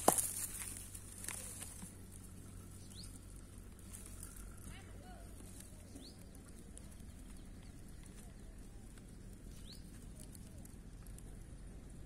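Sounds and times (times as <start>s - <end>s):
low steady rumble: 0.0s - 12.0s
faint bird chirps: 2.2s - 11.4s.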